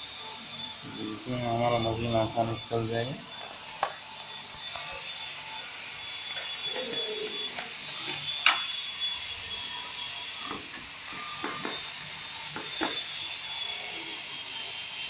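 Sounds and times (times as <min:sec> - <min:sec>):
stone and metal clinks: 0:08.4 - 0:08.7.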